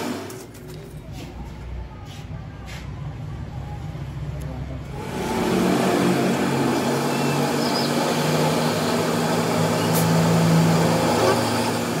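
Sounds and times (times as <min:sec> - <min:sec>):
metal lathe humming: 0:04.9 - 0:12.0.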